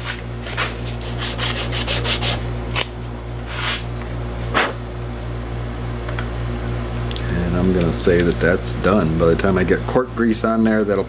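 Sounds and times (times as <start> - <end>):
sandpaper rubbing cork: 0.0 - 2.4.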